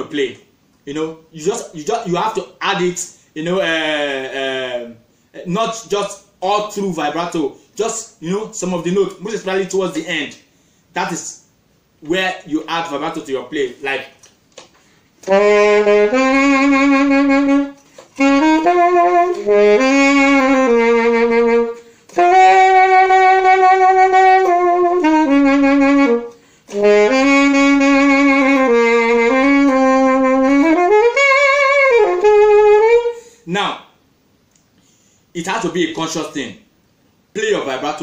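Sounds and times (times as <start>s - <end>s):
saxophone playing jazzy phrases: 15.2s - 33.4s
player breathing: 26.3s - 26.7s, 34.8s - 35.3s.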